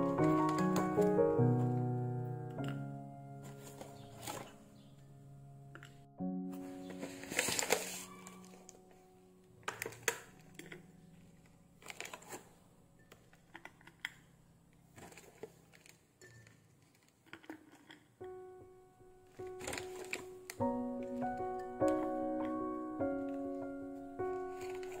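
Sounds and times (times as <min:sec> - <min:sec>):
cookies clicking against glass jar: 0:13.0 - 0:14.4, 0:15.0 - 0:18.1.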